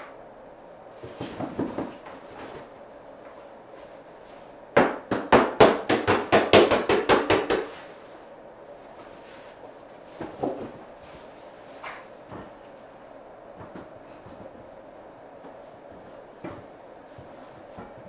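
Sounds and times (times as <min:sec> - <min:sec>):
rapid sharp knocks: 0:04.8 - 0:07.7.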